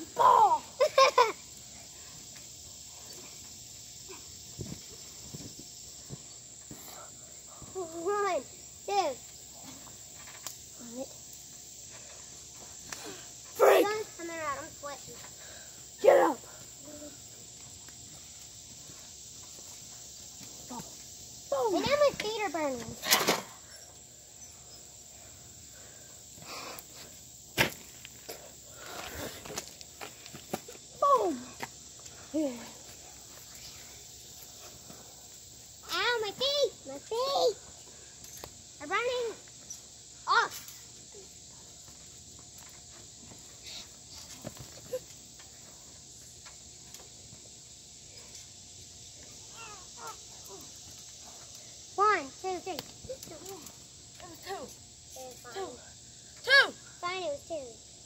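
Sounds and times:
insects chirring: 0:00.0 - 0:58.0
steady high hiss: 0:00.0 - 0:58.0
sharp slap on trampoline: 0:22.9 - 0:23.6.

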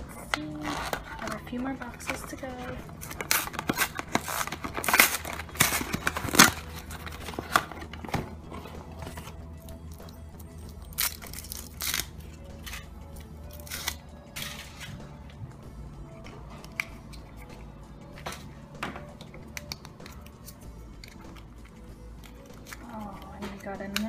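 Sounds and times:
faint music: 0:00.0 - 0:24.0
foil wrapper crinkling: 0:00.2 - 0:15.0
cardboard box opening: 0:00.6 - 0:09.4.

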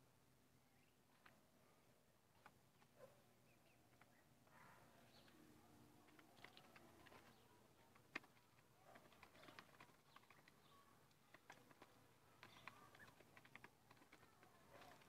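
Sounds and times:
ducklings pecking plastic tub: 0:06.0 - 0:15.0.

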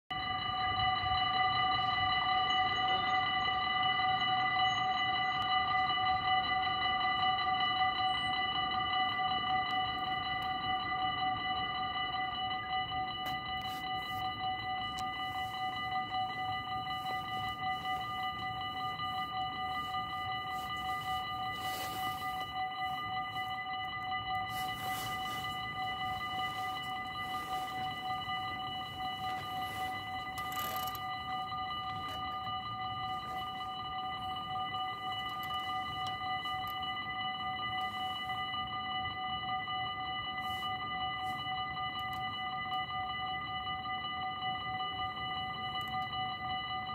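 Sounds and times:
level crossing warning bells: 0:00.1 - 0:46.9.

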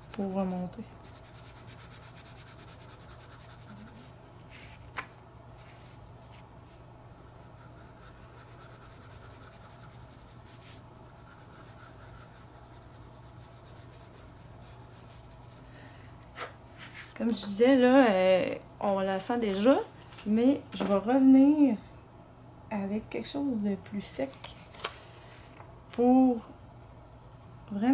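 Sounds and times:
pencil scratching on paper: 0:00.0 - 0:04.1, 0:07.2 - 0:15.6, 0:27.1 - 0:27.9.

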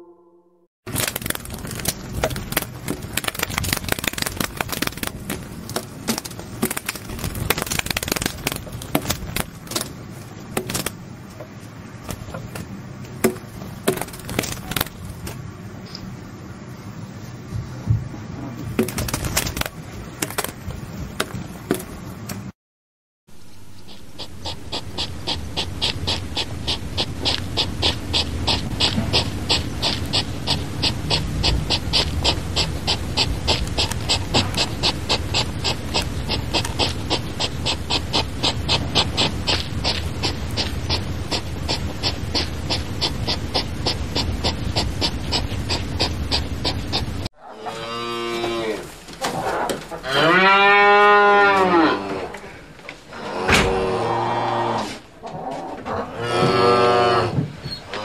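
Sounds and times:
hedgehog sniffing and snuffling: 0:00.9 - 0:11.0, 0:13.4 - 0:15.4, 0:18.8 - 0:20.6, 0:23.4 - 0:47.3
cow mooing: 0:47.4 - 0:48.9, 0:49.5 - 0:52.3, 0:55.9 - 0:58.0.

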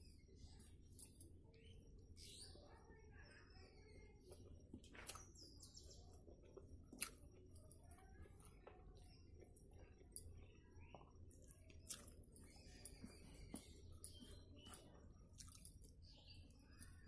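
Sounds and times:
faint high chirps: 0:00.0 - 0:17.0
person chewing food: 0:04.3 - 0:17.0.

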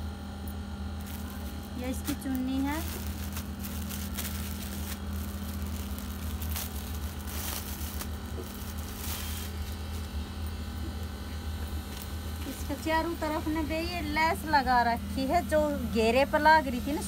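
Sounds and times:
steady low hum: 0:00.0 - 0:17.0
plastic packaging crinkling: 0:01.0 - 0:10.2.

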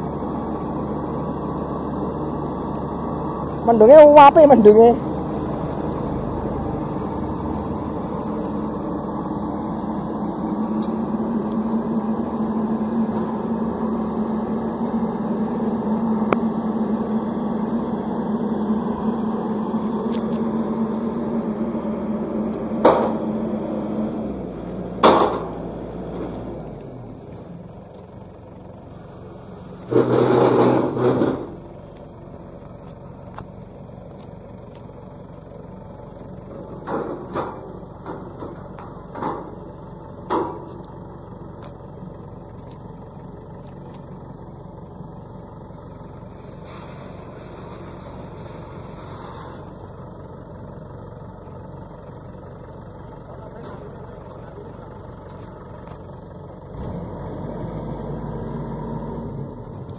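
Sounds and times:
diesel engine running: 0:00.0 - 0:59.9
sharp metallic knocks: 0:22.8 - 0:23.3, 0:25.0 - 0:25.6.

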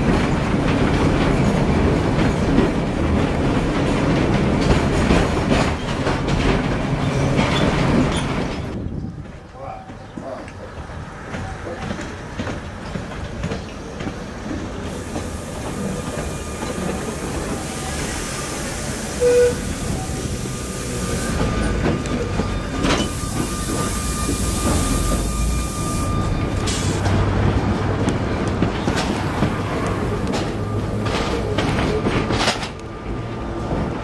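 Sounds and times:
tram wheels clicking and rattling: 0:00.0 - 0:34.0.

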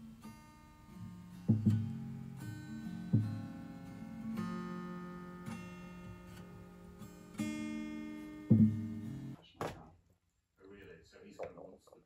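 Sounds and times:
acoustic guitar strumming chords: 0:00.0 - 0:09.4.

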